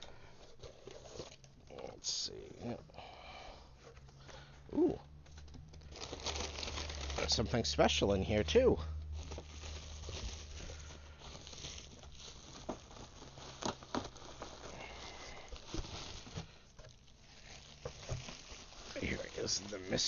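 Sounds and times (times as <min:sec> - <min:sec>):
packing paper rustling: 0:00.0 - 0:01.9, 0:05.3 - 0:08.0, 0:09.1 - 0:20.0.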